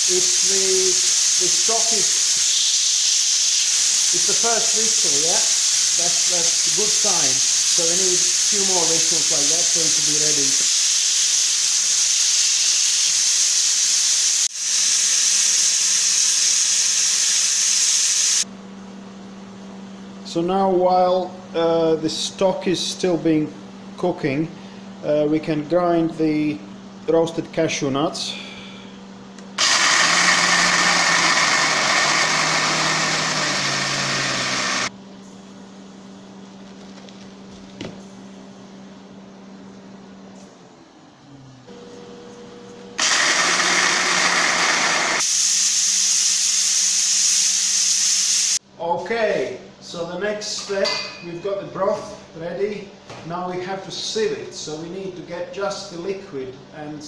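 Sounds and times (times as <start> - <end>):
blender grinding nuts: 0.0 - 2.7, 29.6 - 34.9, 43.0 - 45.4
pressure cooker whistling: 29.6 - 34.9, 43.0 - 48.6.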